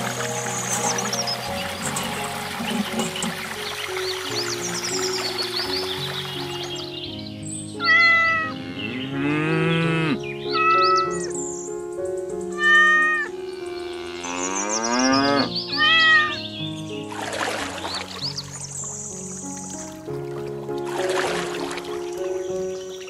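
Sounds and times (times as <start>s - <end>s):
background music: 0.0s - 23.0s
cat meowing: 7.8s - 8.6s, 10.5s - 11.2s, 12.5s - 13.4s, 15.7s - 16.4s
cow mooing: 7.9s - 11.2s, 12.6s - 16.1s.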